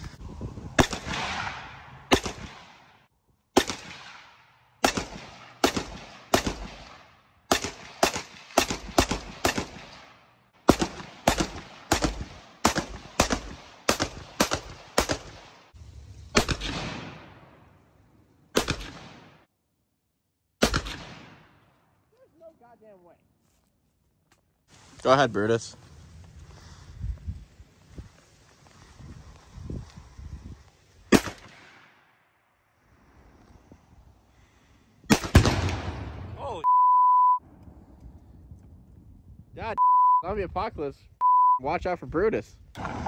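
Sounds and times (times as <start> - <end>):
rifle shots with echo: 0.8 - 3.0, 3.6 - 15.7, 16.4 - 17.7, 18.5 - 19.5, 20.6 - 21.6, 31.1 - 32.0, 35.1 - 36.3, 42.8 - 43.0.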